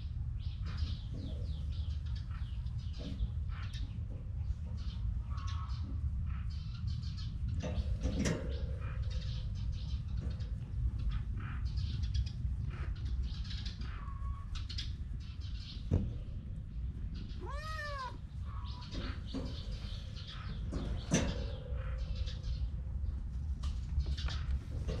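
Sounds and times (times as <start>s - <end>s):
kitten meowing: 17.4s - 18.2s.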